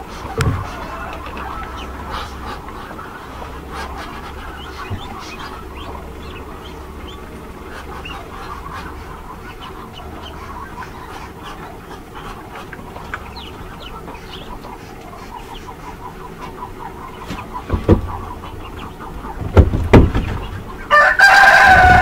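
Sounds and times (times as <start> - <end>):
chicks peeping: 0.0 - 22.0
incubator low hum: 0.0 - 22.0
knock: 17.7 - 18.1, 19.4 - 20.4.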